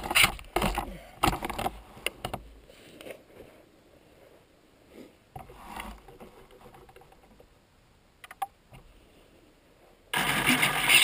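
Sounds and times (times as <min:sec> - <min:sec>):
faint rustling: 0:00.0 - 0:07.6
model plane motor and propeller: 0:10.2 - 0:11.0.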